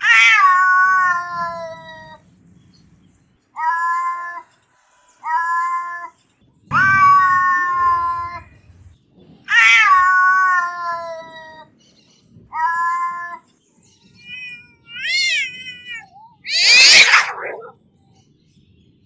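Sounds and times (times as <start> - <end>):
cat meowing: 0.0 - 2.2, 3.6 - 4.4, 6.7 - 8.5, 9.5 - 11.6, 14.0 - 17.8.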